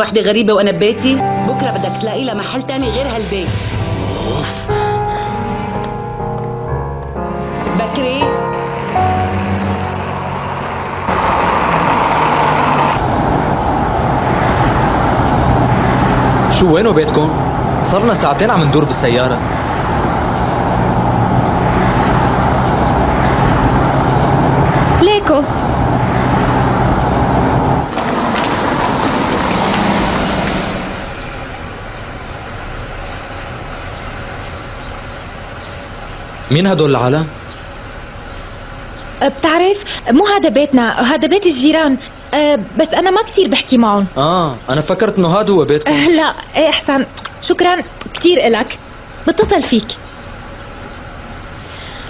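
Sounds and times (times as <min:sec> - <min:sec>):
held music notes: 0:00.7 - 0:11.2
car engine running: 0:02.8 - 0:44.7
road and wind noise: 0:04.9 - 0:52.0.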